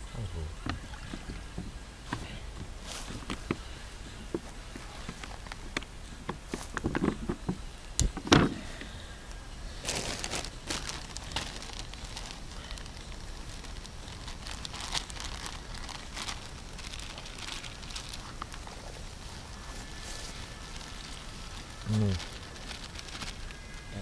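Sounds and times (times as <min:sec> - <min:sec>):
packaging rustling: 0:09.8 - 0:24.0.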